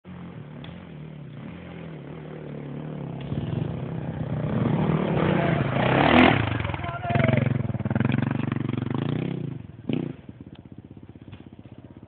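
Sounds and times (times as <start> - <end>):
dirt bike engine running: 0.1 - 12.0.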